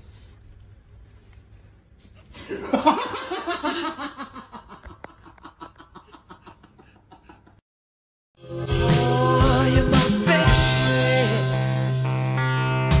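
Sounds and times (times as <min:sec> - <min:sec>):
person laughing: 0:02.4 - 0:07.6.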